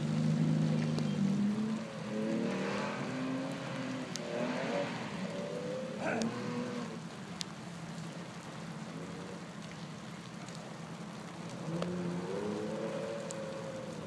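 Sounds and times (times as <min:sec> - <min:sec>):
distant car engine accelerating: 0:00.0 - 0:07.1, 0:11.6 - 0:14.0
rain hissing: 0:00.0 - 0:14.0.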